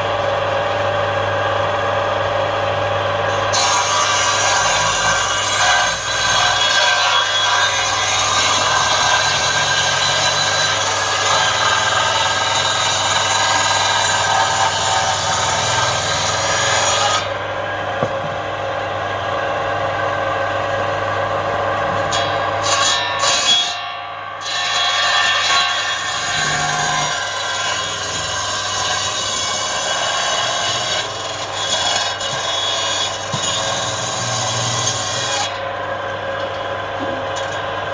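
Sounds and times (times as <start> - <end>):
table saw blade ripping timber: 3.3 - 17.4, 22.0 - 35.7.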